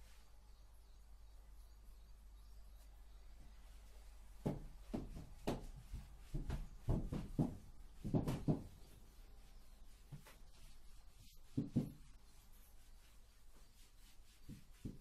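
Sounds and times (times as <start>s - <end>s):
eraser wiping whiteboard: 5.1s - 15.0s.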